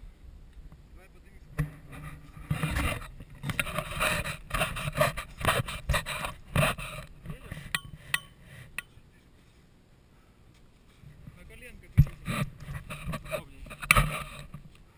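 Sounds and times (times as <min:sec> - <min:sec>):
rustling: 0:01.7 - 0:14.9
sharp clicks with metallic ring: 0:07.7 - 0:09.0.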